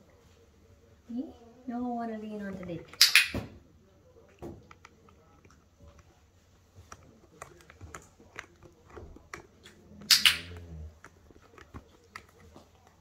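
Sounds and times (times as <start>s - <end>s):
puppy chewing food: 4.0s - 13.0s.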